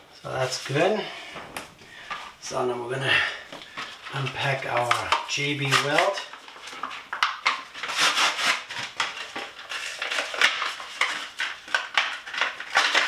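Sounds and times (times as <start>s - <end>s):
packaging crinkling and tearing: 3.3s - 13.0s.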